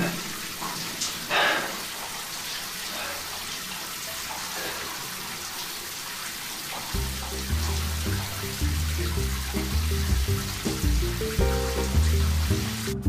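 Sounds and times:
shower spray hissing: 6.7s - 13.0s
music: 7.0s - 13.0s.

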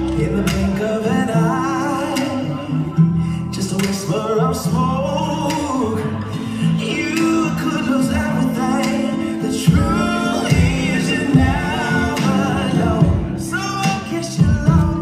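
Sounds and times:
slow song with vocals: 0.0s - 15.0s.

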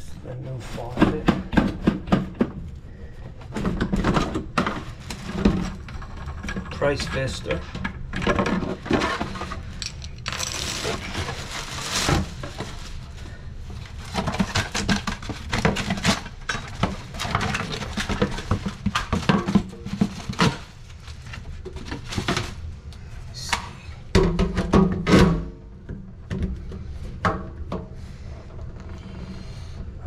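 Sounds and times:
plastic wrapping crinkling: 9.8s - 13.2s.

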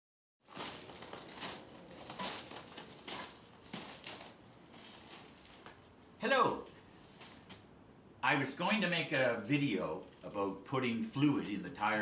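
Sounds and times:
footsteps crunching on gravel: 0.4s - 7.6s.

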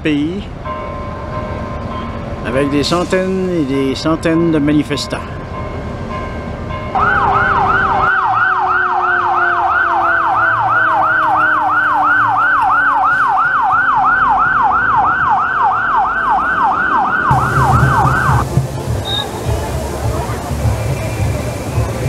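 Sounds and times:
electronic siren yelping: 7.0s - 18.4s.

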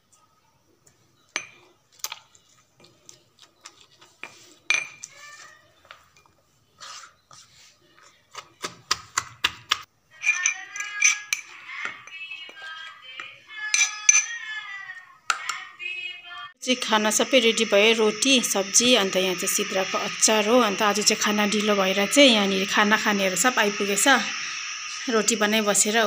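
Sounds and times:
high pitched ringing: 16.6s - 26.0s.

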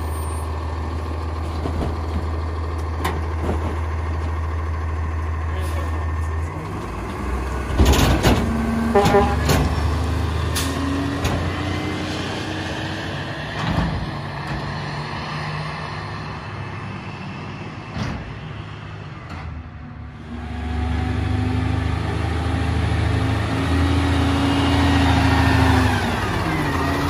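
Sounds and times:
garbage truck engine running: 0.0s - 11.6s.

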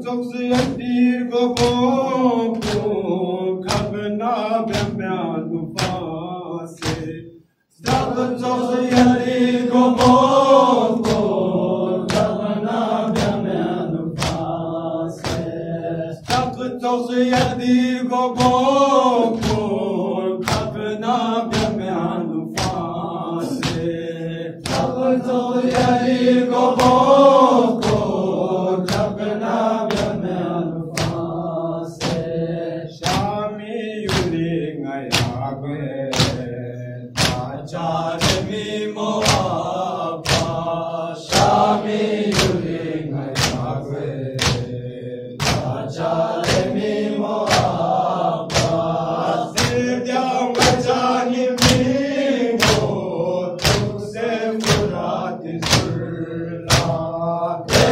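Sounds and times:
men chanting a lament: 0.0s - 57.9s
hand slaps on chest: 0.5s - 1.0s, 1.6s - 3.0s, 3.7s - 4.0s, 4.7s - 5.0s, 5.8s - 6.1s, 6.8s - 7.2s, 7.8s - 8.3s, 8.9s - 11.4s, 12.1s - 12.4s, 13.1s - 13.4s, 14.2s - 14.6s, 15.2s - 15.6s, 16.2s - 16.6s, 17.3s - 17.6s, 18.4s - 19.7s, 20.4s - 20.8s, 21.5s - 21.8s, 22.6s - 22.8s, 23.4s - 24.0s, 24.6s - 25.0s, 25.6s - 26.0s, 26.7s - 28.1s, 28.9s - 29.2s, 29.9s - 30.2s, 30.9s - 31.3s, 32.0s - 32.3s, 33.0s - 33.4s, 34.1s - 34.4s, 35.1s - 35.4s, 36.1s - 36.5s, 37.2s - 37.6s, 38.2s - 38.6s, 39.2s - 40.7s, 41.3s - 41.7s, 42.3s - 42.7s, 43.3s - 43.7s, 44.4s - 44.7s, 45.4s - 45.8s, 46.4s - 46.8s, 47.4s - 48.8s, 49.5s - 49.9s, 50.5s - 50.9s, 51.6s - 52.0s, 52.6s - 52.9s, 53.6s - 54.0s, 54.6s - 55.0s, 55.6s - 56.0s, 56.7s - 57.0s, 57.7s - 57.9s.

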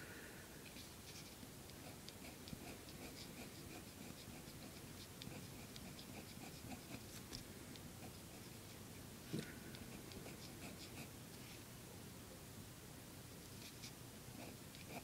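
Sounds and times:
pen scratching on paper: 1.1s - 7.2s, 9.9s - 11.1s.

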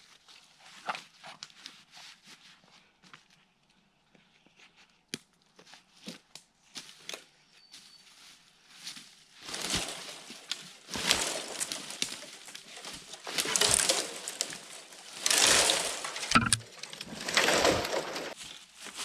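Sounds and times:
footsteps crunching dry leaves: 8.1s - 19.0s.

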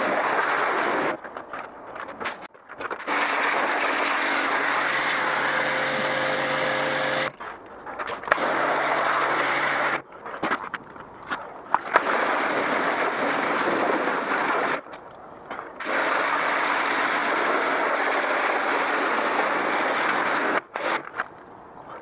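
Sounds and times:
pressure washer spraying: 3.9s - 7.3s.

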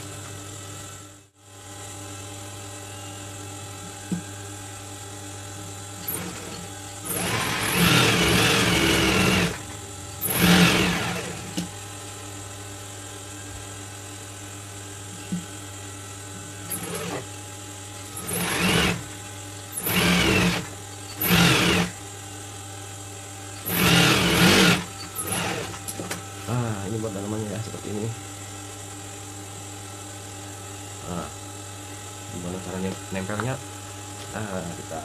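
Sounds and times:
motor hum: 0.0s - 28.8s
sewing machine stitching: 6.0s - 9.6s, 10.2s - 11.6s, 16.7s - 17.3s, 18.2s - 19.1s, 19.8s - 21.9s, 23.6s - 25.8s.

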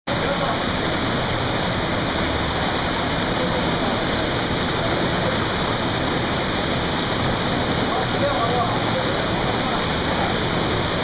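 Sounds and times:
waterfall and stream rushing: 0.1s - 11.0s.

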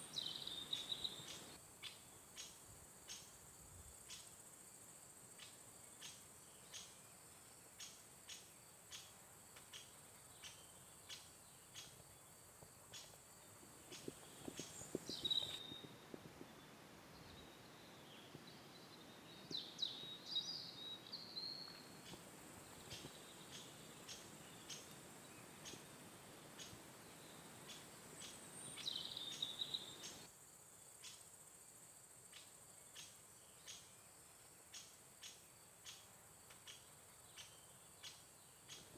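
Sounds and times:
insect chirps: 0.0s - 38.9s
bird calling: 13.9s - 16.0s.

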